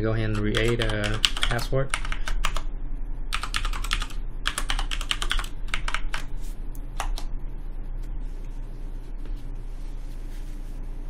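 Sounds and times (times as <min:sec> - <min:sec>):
keyboard typing: 0:00.3 - 0:02.7, 0:03.3 - 0:06.3, 0:07.0 - 0:07.3
low hum: 0:05.5 - 0:11.0.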